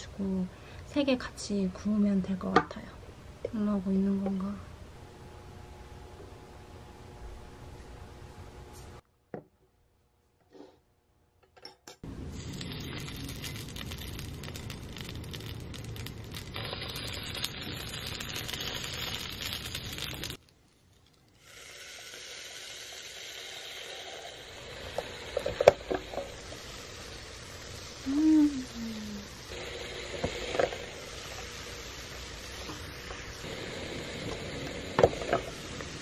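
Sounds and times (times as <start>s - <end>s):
dough sizzling in waffle maker: 12.1s - 36.0s.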